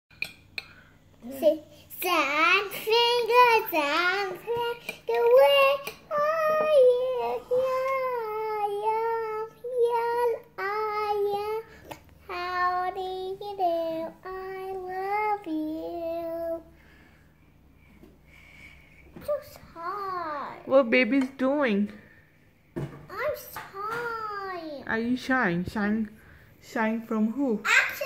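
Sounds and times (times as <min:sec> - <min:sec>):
child singing: 0:01.3 - 0:16.7.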